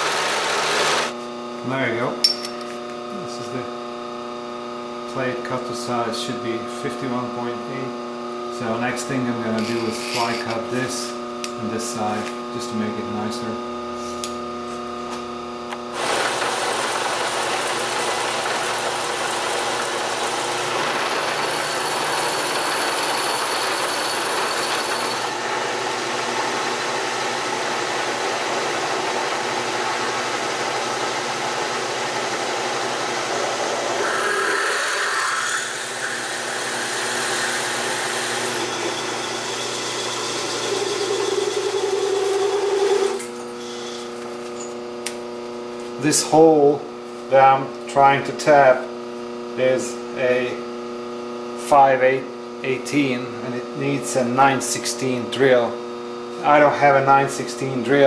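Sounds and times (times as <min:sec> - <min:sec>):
milling machine spindle running: 0:00.0 - 0:01.2, 0:09.6 - 0:10.6, 0:15.9 - 0:44.8
cutter hissing and chattering: 0:09.6 - 0:10.6, 0:33.9 - 0:38.6.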